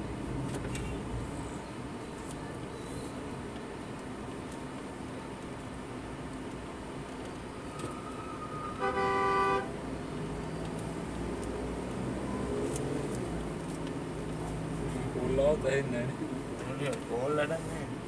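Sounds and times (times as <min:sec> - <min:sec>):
street traffic hum: 0:00.0 - 0:18.0
vehicle horn blast: 0:08.8 - 0:09.7.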